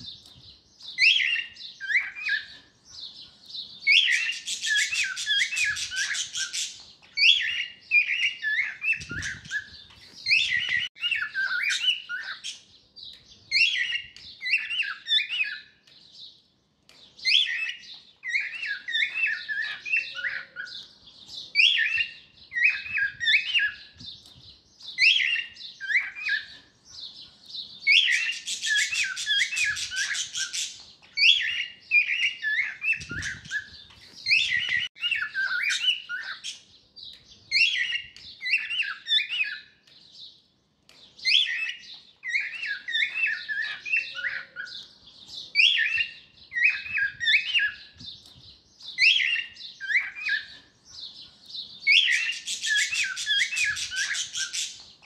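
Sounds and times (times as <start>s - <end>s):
cockatiel chirping whistles: 3.9s - 6.6s.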